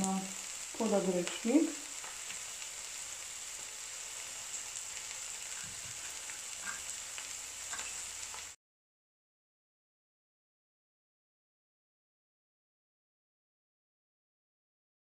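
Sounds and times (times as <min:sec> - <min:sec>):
greens sizzling in oil: 0:00.0 - 0:08.6.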